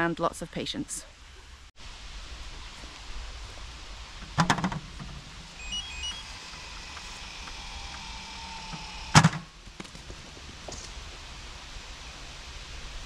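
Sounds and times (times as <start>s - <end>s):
electronic beeps: 5.6s - 9.2s
motor whirring: 5.6s - 9.7s.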